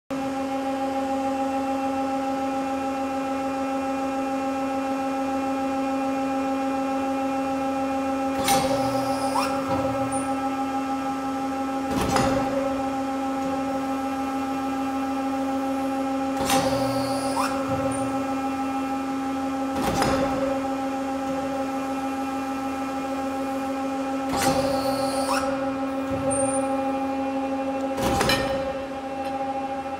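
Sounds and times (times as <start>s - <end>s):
machine hum: 8.6s - 29.9s.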